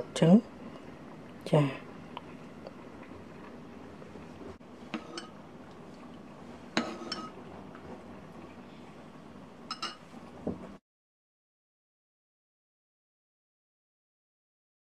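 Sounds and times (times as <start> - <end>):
spoon clinking against ceramic bowl: 6.8 - 7.4, 9.7 - 10.0.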